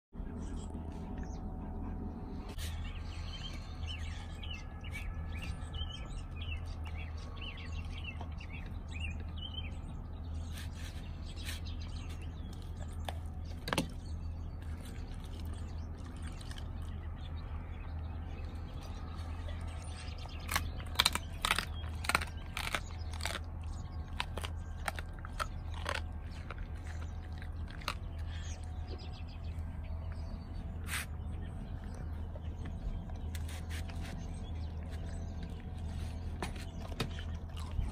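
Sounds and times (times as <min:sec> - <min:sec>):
birds chirping: 0:00.2 - 0:37.9
low steady rumble: 0:00.2 - 0:37.9
dog crunching bites: 0:19.4 - 0:28.8, 0:32.7 - 0:37.9.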